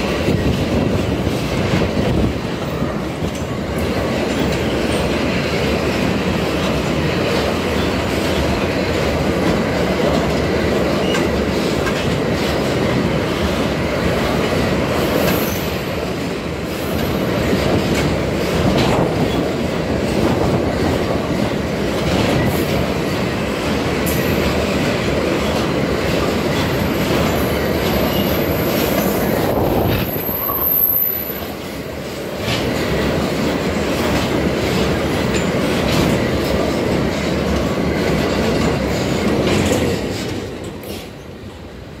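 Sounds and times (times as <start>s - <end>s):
train wheels clattering on rails: 0.0s - 42.0s
high wheel squeal: 26.8s - 29.3s, 30.0s - 31.6s.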